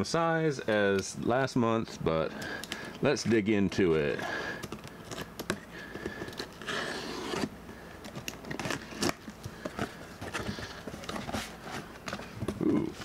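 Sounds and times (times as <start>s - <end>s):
tape and cardboard rasping: 4.6s - 13.0s.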